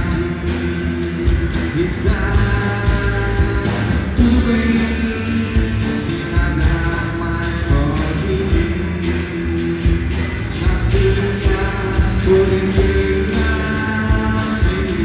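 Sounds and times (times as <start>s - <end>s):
drum kit beat: 0.0s - 15.0s
electric guitars: 0.0s - 15.0s
hand drums: 0.0s - 15.0s.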